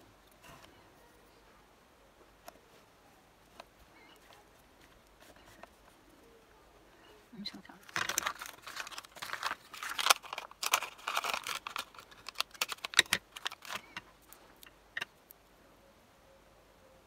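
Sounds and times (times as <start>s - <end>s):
paper sheet rustling: 7.8s - 14.6s.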